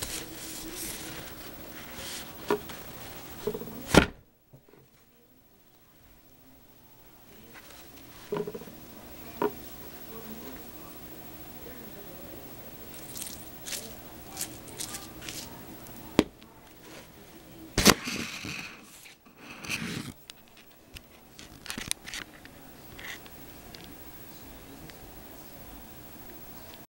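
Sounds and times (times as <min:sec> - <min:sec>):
paper napkin crinkling: 0:00.0 - 0:03.7, 0:12.9 - 0:15.6
small objects knocked and slid: 0:08.2 - 0:08.7.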